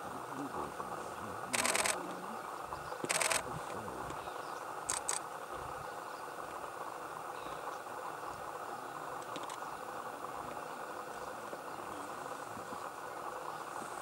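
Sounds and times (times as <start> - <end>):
background hiss: 0.0 - 14.0
camera shutter firing: 1.5 - 2.0, 3.0 - 3.5, 4.9 - 5.2.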